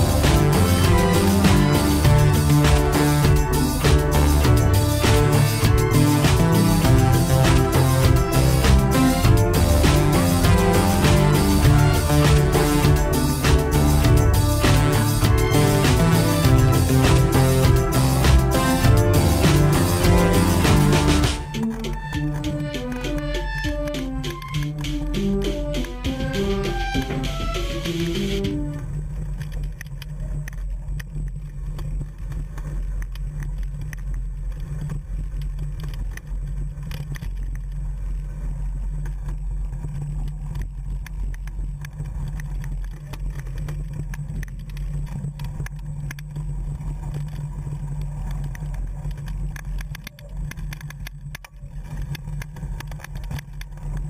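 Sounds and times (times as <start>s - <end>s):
wind and vibration rumble: 0.0s - 54.0s.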